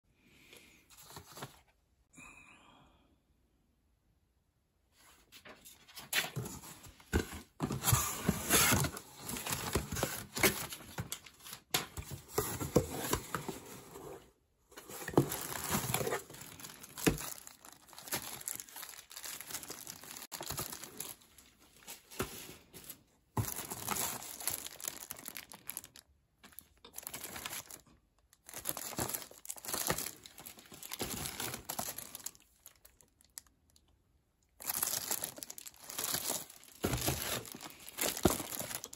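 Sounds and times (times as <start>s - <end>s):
plastic bags crinkling: 15.0s - 33.5s, 34.6s - 38.9s.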